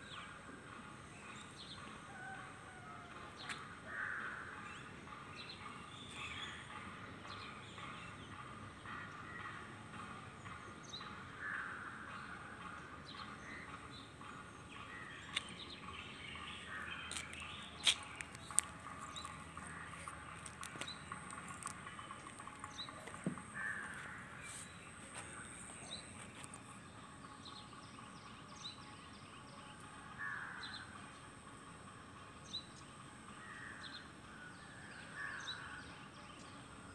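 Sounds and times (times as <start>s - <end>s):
small birds chirping: 13.1s - 29.2s.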